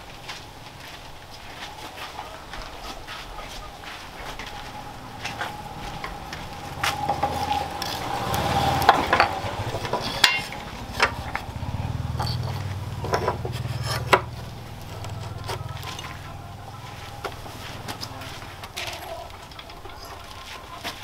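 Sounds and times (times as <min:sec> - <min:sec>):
metal ringing: 0:08.8 - 0:14.4
file rasping on steel: 0:13.5 - 0:14.3.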